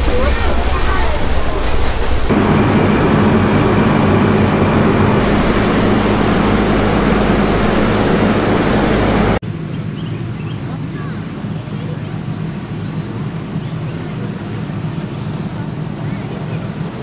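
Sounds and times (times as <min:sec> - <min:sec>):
steam locomotive hissing steam: 0:00.0 - 0:09.4
low hum: 0:02.3 - 0:09.4.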